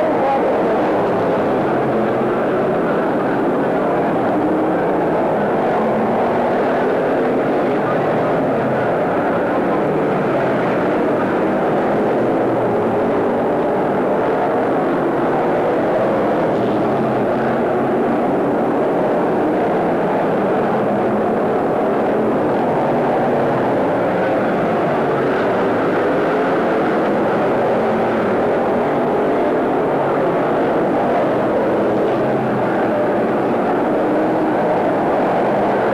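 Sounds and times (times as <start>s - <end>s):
race car engines droning: 0.0s - 35.9s.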